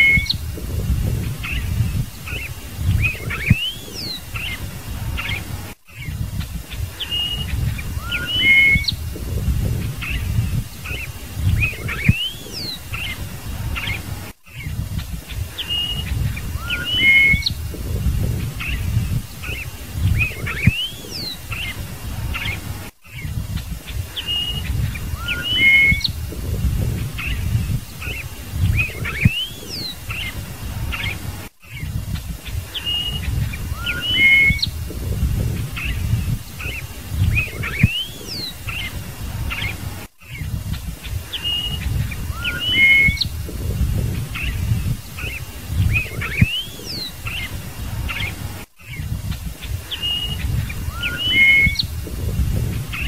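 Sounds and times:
blackbird singing: 0:00.0 - 0:49.0, 0:49.8 - 0:53.0
low rumble: 0:00.4 - 0:03.5, 0:08.9 - 0:12.1, 0:17.5 - 0:20.5, 0:26.1 - 0:27.9, 0:34.7 - 0:37.7, 0:43.3 - 0:45.1, 0:51.8 - 0:53.0.

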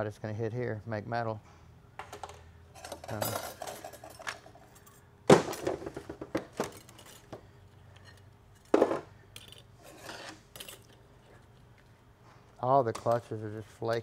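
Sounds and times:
metal parts clinking on bench: 0:02.0 - 0:05.0, 0:06.5 - 0:11.0.

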